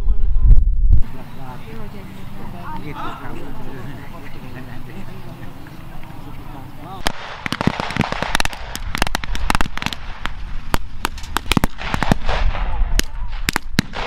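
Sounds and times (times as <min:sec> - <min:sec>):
blank gunfire cracks: 0:07.0 - 0:14.0.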